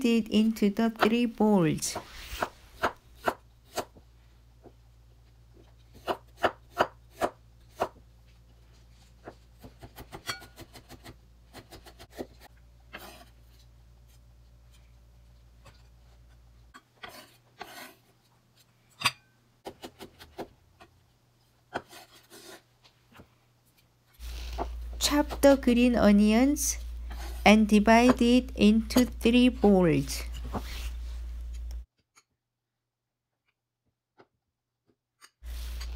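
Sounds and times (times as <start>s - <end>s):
knife scraping across board: 10.2s - 13.6s, 17.0s - 18.1s, 21.7s - 22.7s, 27.1s - 27.4s, 35.4s - 35.9s.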